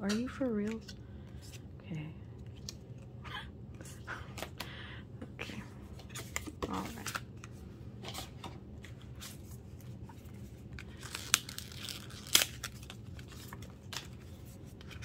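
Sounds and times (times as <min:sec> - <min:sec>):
paper rustling and tearing: 0:10.9 - 0:15.0.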